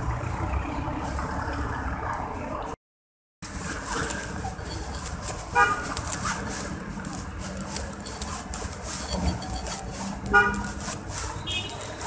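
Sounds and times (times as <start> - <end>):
steady background noise: 3.4 - 12.0.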